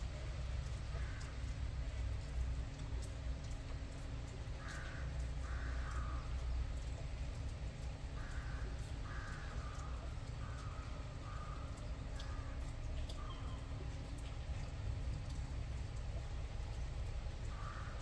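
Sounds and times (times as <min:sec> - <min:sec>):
crow cawing: 0:00.9 - 0:01.4, 0:04.6 - 0:06.9, 0:08.2 - 0:13.7, 0:17.5 - 0:18.0.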